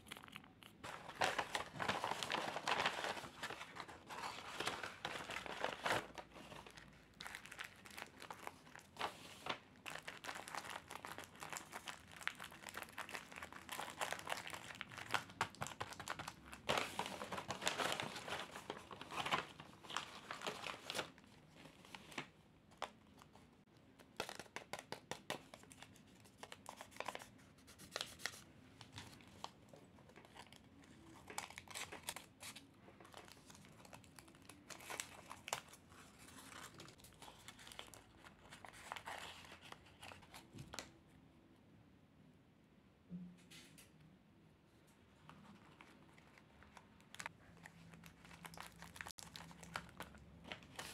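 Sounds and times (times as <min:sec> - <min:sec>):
paper bag crinkling and tearing: 0:00.0 - 0:22.3, 0:30.1 - 0:40.4, 0:45.8 - 0:50.9
paper packet crackling: 0:00.0 - 0:23.4, 0:24.0 - 0:40.9, 0:45.3 - 0:50.9.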